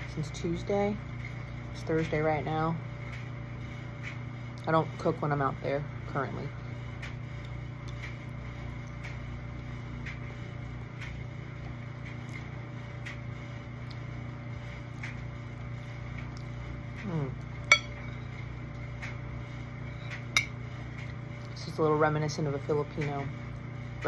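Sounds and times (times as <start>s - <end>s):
low electrical hum: 0.0s - 24.0s
spoon clinking against bowl: 17.7s - 18.1s.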